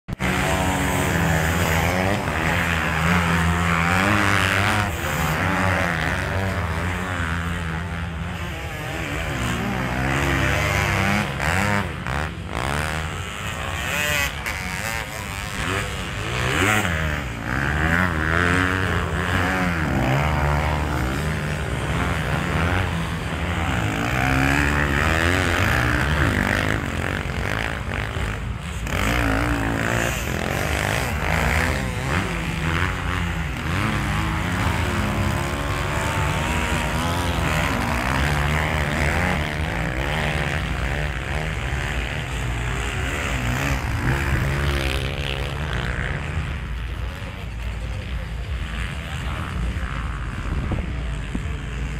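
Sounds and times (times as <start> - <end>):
motocross bikes revving: 0.1 - 51.9.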